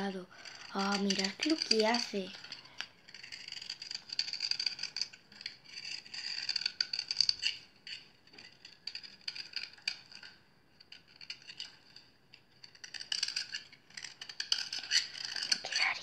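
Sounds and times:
knife cutting into soap: 3.1 - 10.3.

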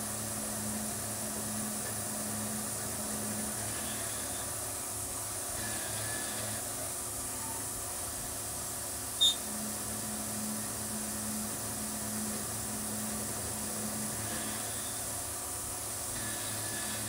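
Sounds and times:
milling machine spindle cutting: 5.4 - 6.8, 9.5 - 17.0
high-pitched chirp: 9.2 - 9.4.

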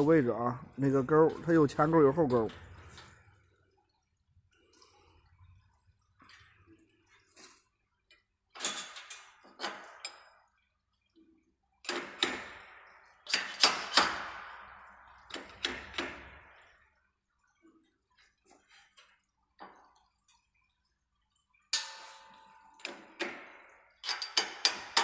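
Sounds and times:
metal clicks and knocks: 21.7 - 25.0.

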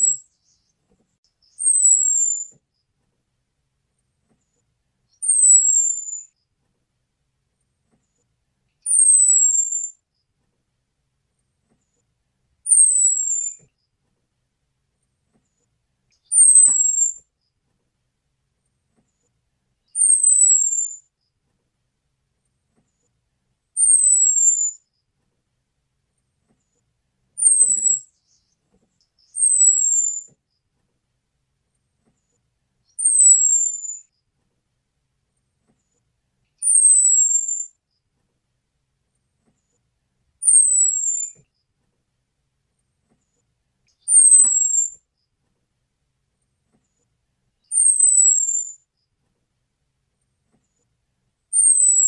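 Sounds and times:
thrush high whistled calls: 1.6 - 2.5, 5.2 - 6.3, 8.9 - 9.9, 12.7 - 13.6, 16.3 - 17.2, 20.0 - 21.0, 23.8 - 24.8, 27.4 - 28.4, 29.2 - 30.3, 33.0 - 34.0, 36.6 - 37.7, 40.4 - 41.4, 44.0 - 45.0, 47.7 - 48.8, 51.6 - 52.0.

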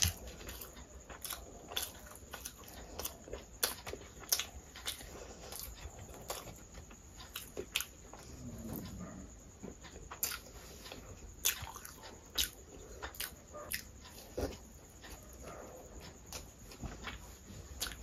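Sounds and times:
wet chewing and lip smacks: 0.0 - 8.3.

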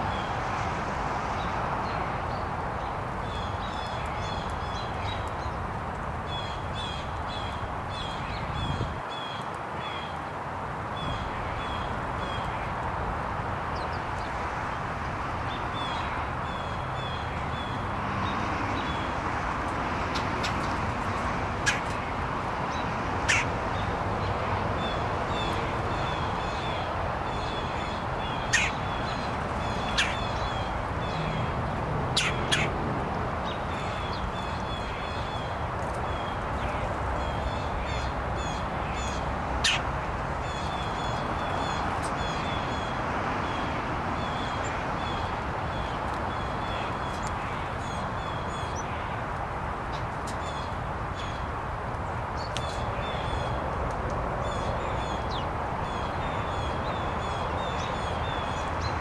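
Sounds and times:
bird chip calls: 21.6 - 22.0, 23.2 - 23.5, 25.4 - 31.4, 32.1 - 32.7, 36.2 - 39.9.

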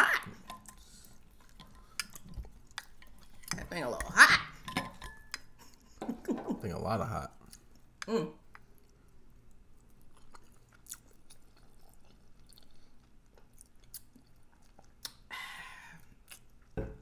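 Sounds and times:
close-up chewing: 0.0 - 3.6, 7.3 - 15.3
lip smacks: 13.4 - 15.3.

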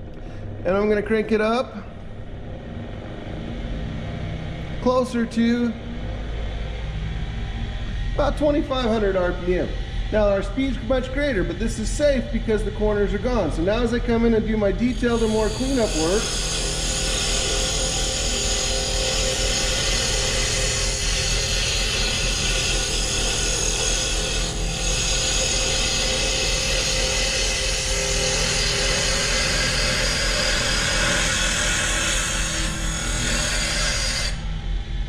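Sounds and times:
lathe motor hum: 5.7 - 35.0
wood being shaved on lathe: 11.0 - 34.5.

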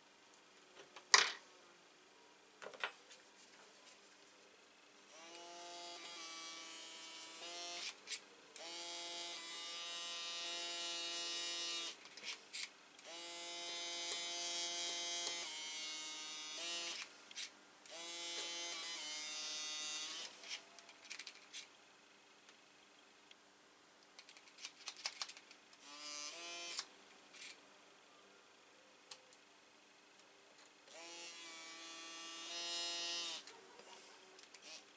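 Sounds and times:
small power tool motor whining: 5.2 - 8.0, 8.6 - 20.6, 25.8 - 27.6, 30.9 - 33.5, 34.6 - 34.9.

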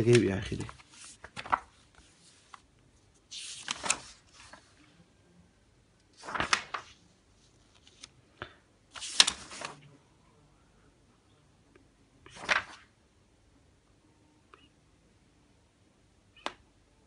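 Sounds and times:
paper rustling: 0.0 - 4.9, 6.1 - 8.2, 8.9 - 9.9, 12.3 - 12.9.

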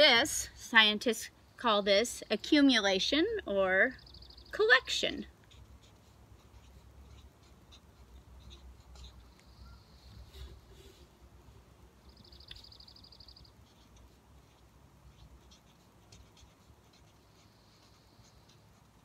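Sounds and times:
marker scratching on paper: 4.6 - 11.1, 12.2 - 19.0.

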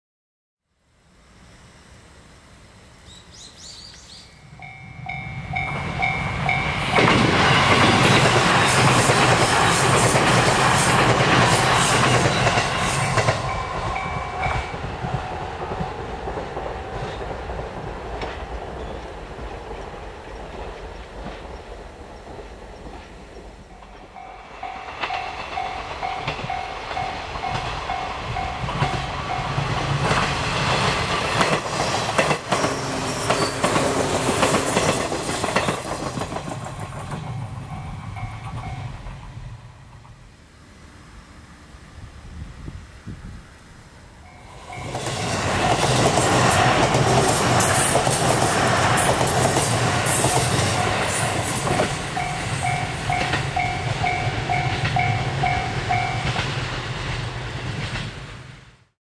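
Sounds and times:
train wheels clattering over rails: 6.5 - 39.4, 44.5 - 58.5
level crossing alarm ringing: 52.0 - 56.4.

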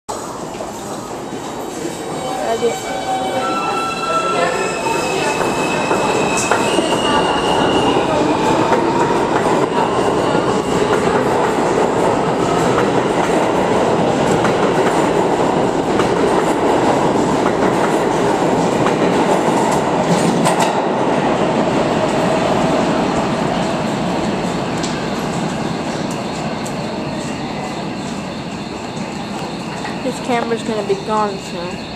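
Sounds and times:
train wheels rumbling: 0.4 - 31.9
rail clicks: 5.1 - 21.0, 23.5 - 31.8.

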